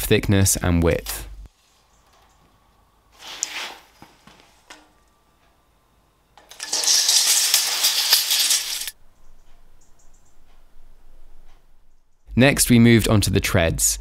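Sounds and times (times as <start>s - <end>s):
tape measure scrape: 3.2s - 4.0s, 6.5s - 9.0s
tape measure blade retracting: 6.5s - 9.0s.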